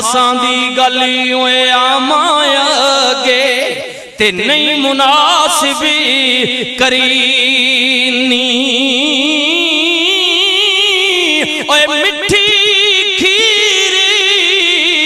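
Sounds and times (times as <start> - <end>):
man chanting with vibrato: 0.0 - 15.0.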